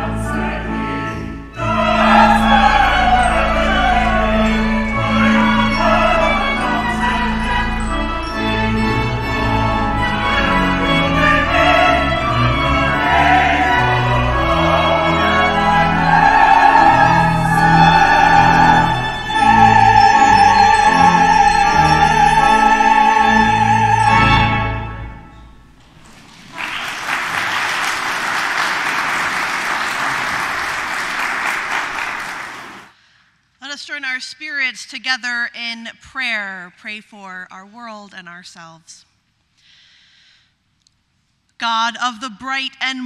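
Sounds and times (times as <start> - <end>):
classical vocal piece with instruments: 0.0 - 27.0
audience applause: 25.8 - 32.9.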